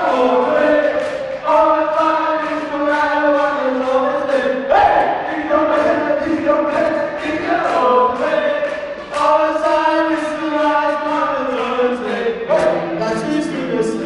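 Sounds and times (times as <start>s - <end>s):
men singing a cappella: 0.0s - 14.0s.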